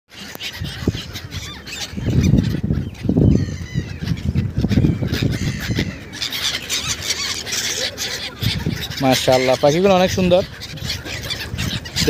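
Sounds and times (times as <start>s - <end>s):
gulls calling: 0.1s - 12.0s.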